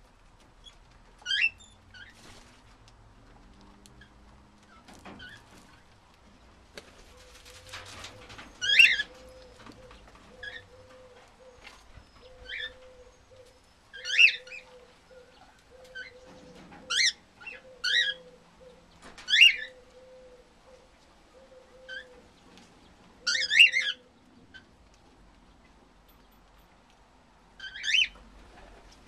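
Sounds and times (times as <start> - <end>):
cockatiels chirping: 1.2 - 2.1, 8.0 - 18.3, 23.2 - 24.0, 27.6 - 28.2.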